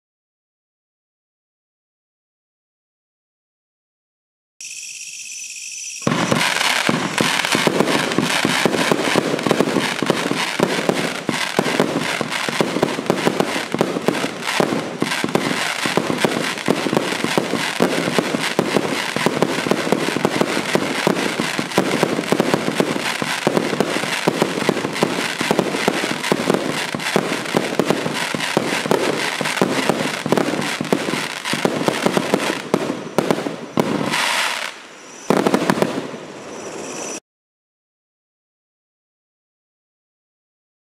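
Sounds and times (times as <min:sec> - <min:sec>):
fireworks cake firing: 0:06.0 - 0:37.0.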